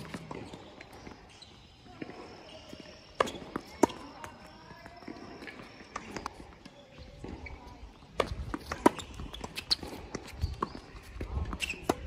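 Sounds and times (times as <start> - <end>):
tennis ball hitting racket: 3.1 - 4.2, 8.1 - 10.7.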